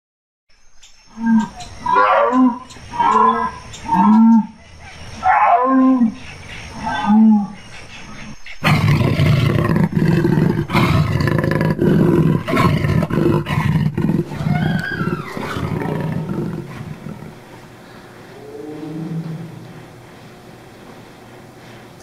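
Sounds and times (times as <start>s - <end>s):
jaguar growling: 1.2s - 4.6s, 8.6s - 20.0s
jaguar calls: 1.2s - 20.0s.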